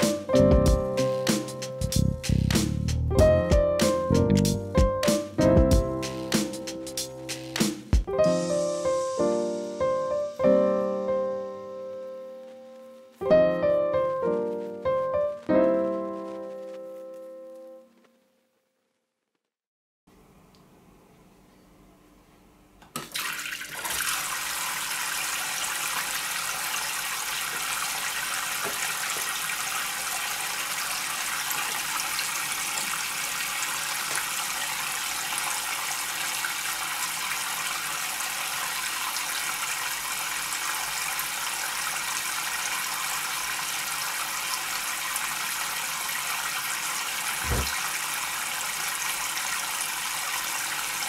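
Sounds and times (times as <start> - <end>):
water splashing into tray: 23.0 - 30.2
low thump: 47.4 - 47.8.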